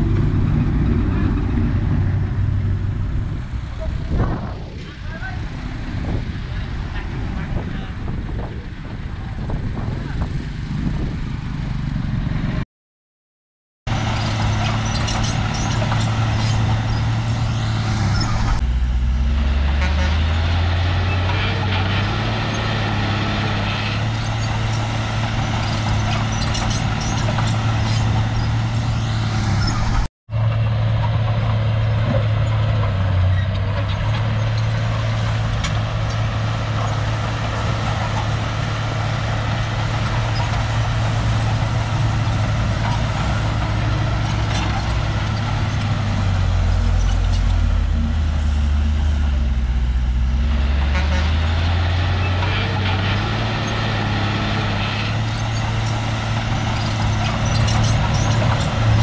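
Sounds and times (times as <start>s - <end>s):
bulldozer diesel engine running: 0.0s - 12.6s, 13.9s - 59.0s.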